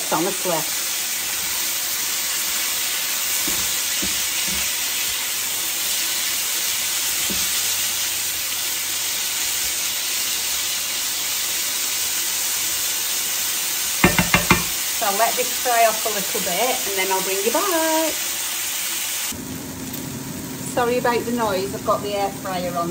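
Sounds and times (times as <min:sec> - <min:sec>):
vegetables sizzling in frying pan: 0:00.0 - 0:22.9
tongs knocking against pan: 0:14.0 - 0:14.8.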